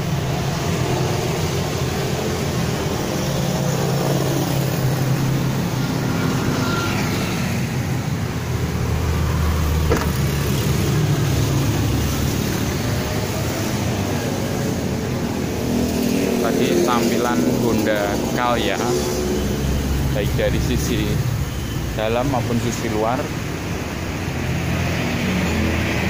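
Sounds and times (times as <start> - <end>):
car engine idling: 8.0 - 13.4
tailgate shutting knock: 9.8 - 10.4.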